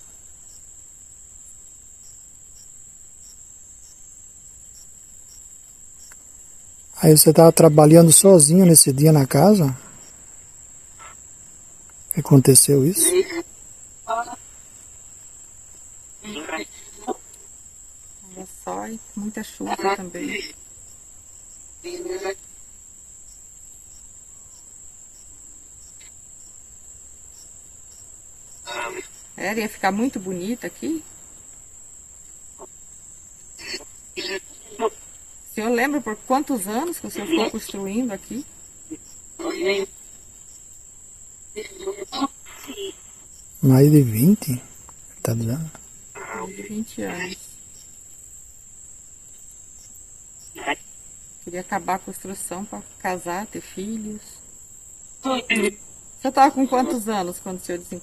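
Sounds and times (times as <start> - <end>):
crickets trilling: 0.0 - 58.0
insect chirps: 0.0 - 58.0
short burst of voice: 43.6 - 44.6, 45.2 - 45.7.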